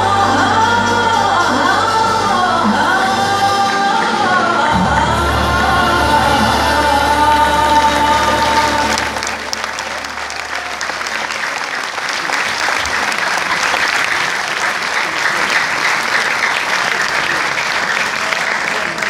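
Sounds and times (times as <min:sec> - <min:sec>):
audience applause: 0:05.3 - 0:19.0.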